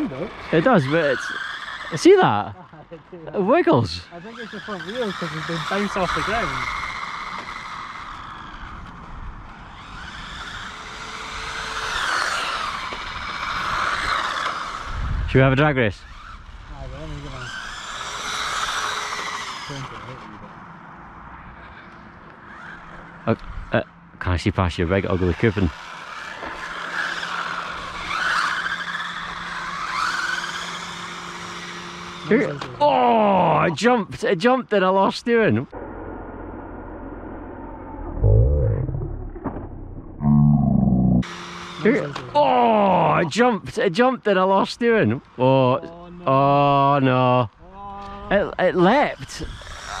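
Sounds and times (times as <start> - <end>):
rc car motors whining: 0.0 - 23.9, 24.7 - 34.1, 41.2 - 43.6, 48.3 - 50.0.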